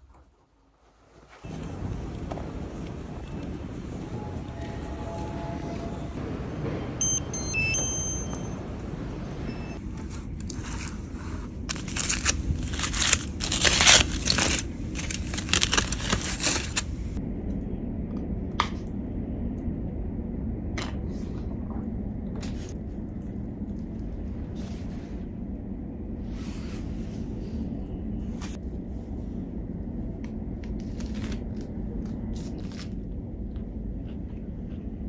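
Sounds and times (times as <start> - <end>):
short high electronic beeps: 7.0 - 8.7
aluminium foil crinkling: 10.4 - 17.2.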